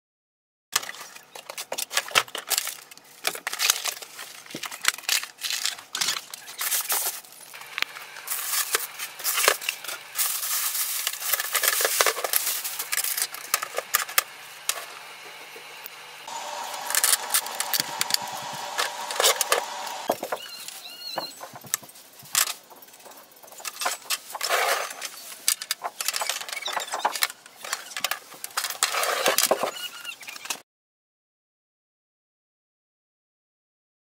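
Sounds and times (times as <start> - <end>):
packing blocks scraping and knocking: 0.8 - 14.9, 21.2 - 30.6
plastic wrapping rustling: 0.8 - 15.2, 16.3 - 30.6.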